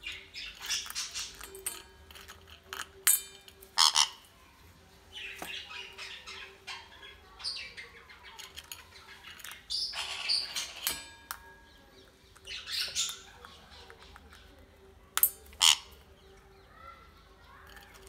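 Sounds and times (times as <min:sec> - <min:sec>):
beak pecking metal bowl: 0:00.0 - 0:04.3, 0:08.2 - 0:16.1
parrot squawking harshly: 0:03.8 - 0:04.2, 0:09.9 - 0:10.8, 0:15.6 - 0:15.9.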